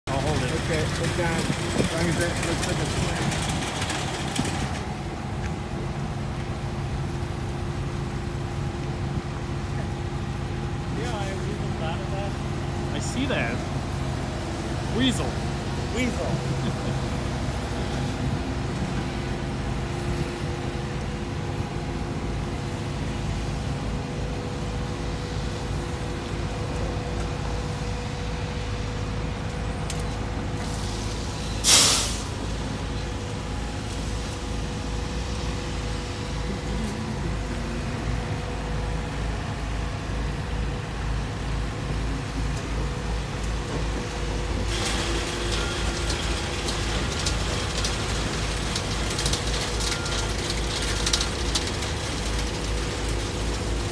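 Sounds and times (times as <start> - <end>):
vehicle engine running: 0.0 - 53.9
rushing water hiss: 30.4 - 39.0, 42.4 - 51.0
short loud hiss: 30.7 - 32.4.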